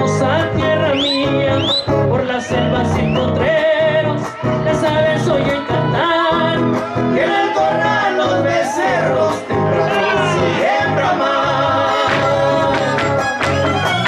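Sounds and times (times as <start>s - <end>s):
strummed guitars: 0.0s - 14.0s
violin melody: 12.8s - 14.0s.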